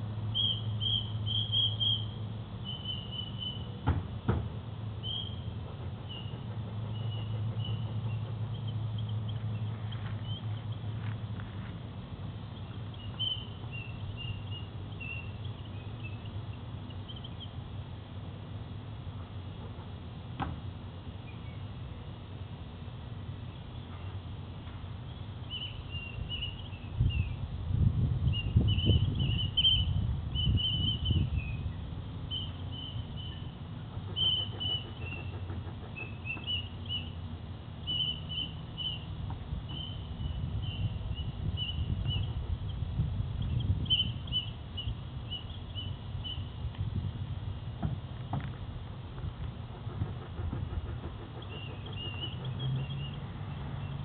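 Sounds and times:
high chirping whistle notes: 0.3s - 3.7s.

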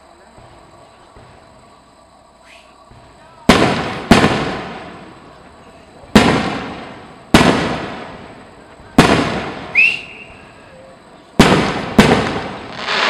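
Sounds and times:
firework booms with echo: 2.9s - 5.4s, 6.0s - 10.4s, 11.4s - 13.0s
high firework whistle: 9.2s - 13.0s.

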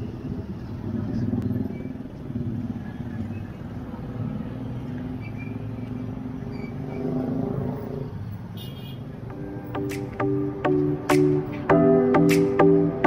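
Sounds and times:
vehicle engines running: 0.0s - 8.5s.

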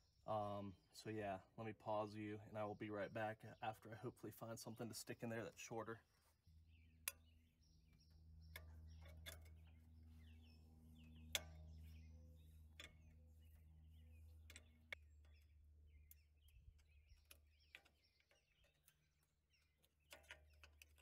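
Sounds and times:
birds chirping: 0.0s - 21.0s
low hum: 6.2s - 18.3s.

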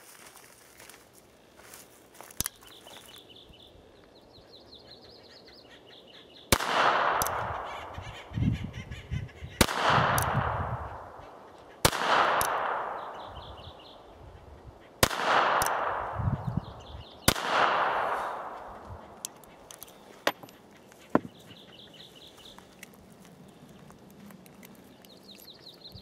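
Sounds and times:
revolver gunshots with echo: 6.5s - 8.0s, 9.6s - 11.2s, 11.8s - 13.5s, 15.0s - 16.5s, 17.2s - 18.8s.

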